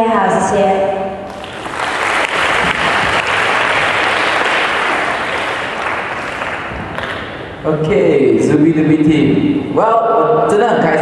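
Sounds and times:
audience applauding: 1.3s - 7.4s.

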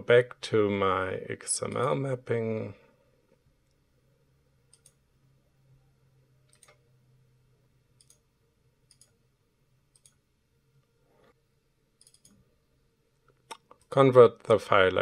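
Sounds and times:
faint computer mouse clicks: 4.7s - 5.0s, 8.0s - 8.2s, 8.9s - 9.2s, 9.9s - 10.2s, 12.0s - 12.4s.

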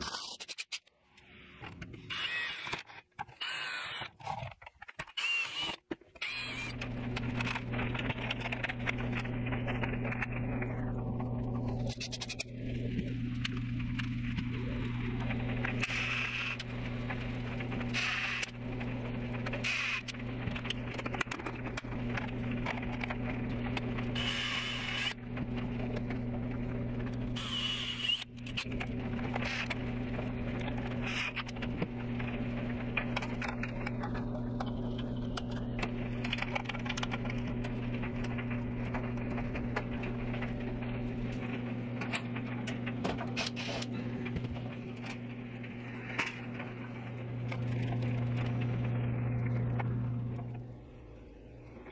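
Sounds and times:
cordless drill whirring: 2.1s - 2.8s, 3.4s - 4.1s, 5.2s - 6.8s, 27.3s - 28.3s
low hum: 6.2s - 51.9s.

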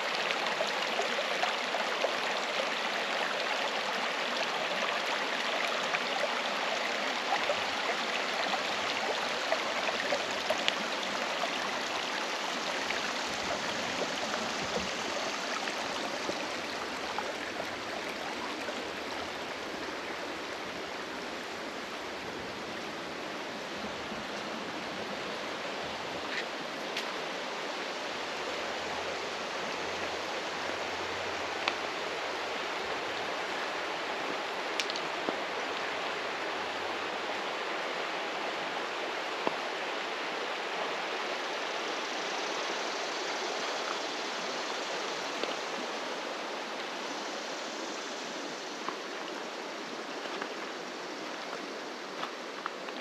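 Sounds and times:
water rushing in river: 0.0s - 53.0s.

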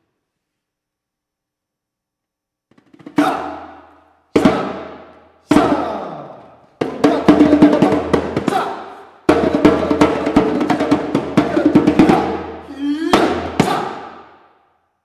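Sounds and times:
person chanting: 3.2s - 3.8s, 4.4s - 14.2s
djembe played by hand: 6.8s - 8.5s.

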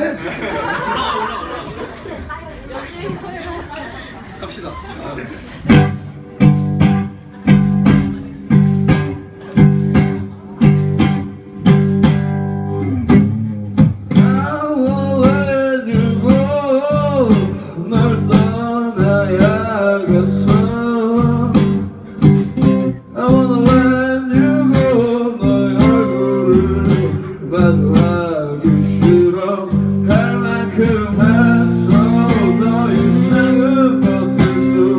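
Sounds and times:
rock band playing live: 5.7s - 34.9s
person singing: 14.1s - 34.9s.

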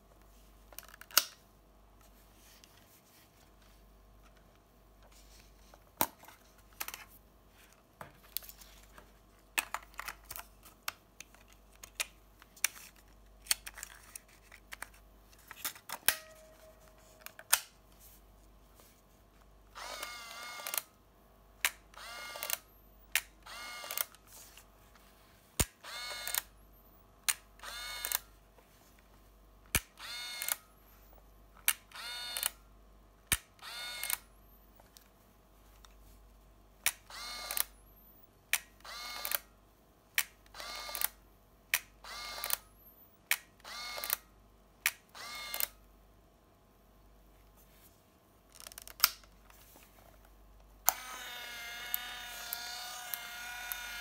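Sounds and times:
camera motor whirring: 19.8s - 20.9s, 21.9s - 24.2s, 25.8s - 26.5s, 27.6s - 28.3s, 30.0s - 30.6s, 31.9s - 32.6s, 33.6s - 34.2s, 37.0s - 38.0s, 38.8s - 39.5s, 40.5s - 41.2s, 42.0s - 42.7s, 43.6s - 44.2s, 45.1s - 45.8s, 50.8s - 54.0s.

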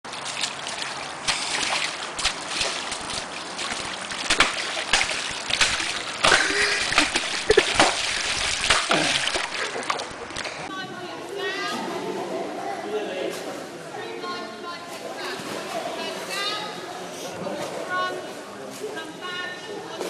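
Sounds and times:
running water: 0.0s - 10.7s
poles splashing in water: 0.1s - 10.6s.

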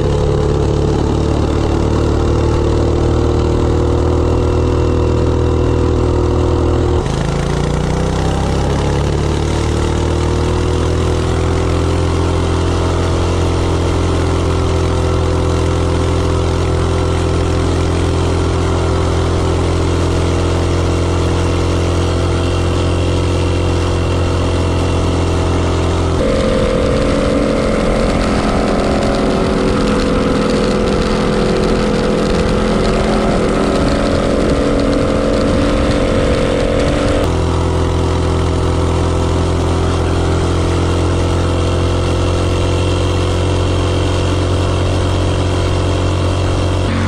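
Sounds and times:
small engine droning at full throttle: 0.0s - 47.0s
wind rush: 26.1s - 37.3s.

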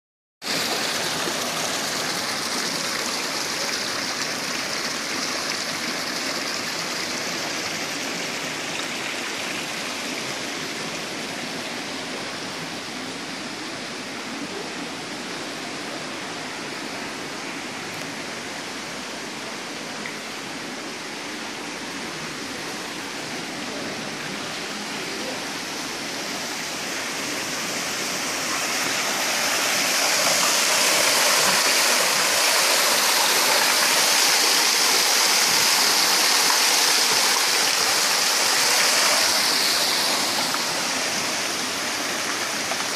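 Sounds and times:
water pouring into stone channel: 28.2s - 42.9s.

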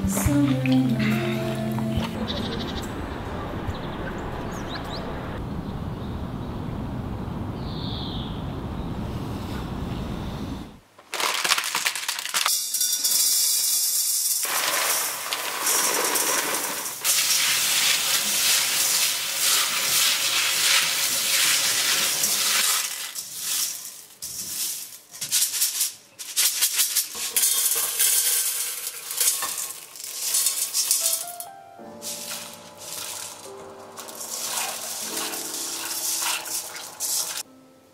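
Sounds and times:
beans rattling in metal colander: 11.0s - 37.5s
hands rubbing beans: 13.1s - 31.4s, 32.0s - 37.5s
running tap water: 16.9s - 22.7s.

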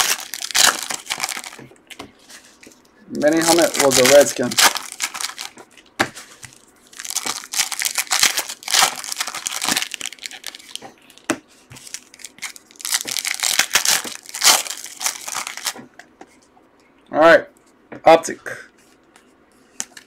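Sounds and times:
wrapper tearing and crinkling: 0.0s - 1.6s, 3.3s - 5.6s, 6.8s - 10.8s, 11.8s - 15.8s.

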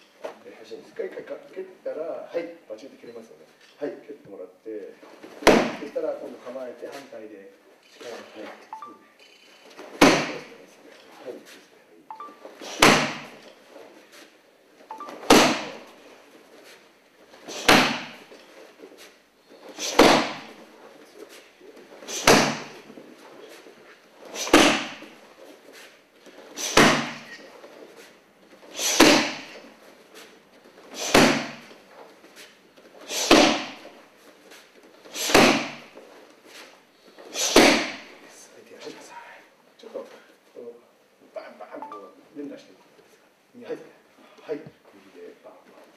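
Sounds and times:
kicks smacking pads: 5.4s - 5.9s, 10.0s - 10.4s, 12.8s - 13.3s, 15.3s - 15.7s, 17.6s - 18.2s, 19.8s - 20.5s, 22.2s - 22.8s, 24.5s - 25.0s, 26.7s - 27.2s, 29.0s - 29.5s, 31.0s - 31.6s, 33.3s - 33.8s, 35.3s - 35.8s, 37.5s - 38.0s.

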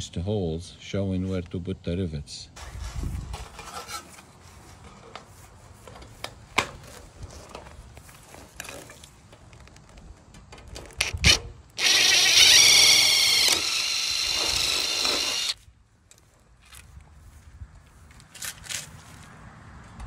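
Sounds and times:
power tool motor whine: 11.1s - 15.6s.

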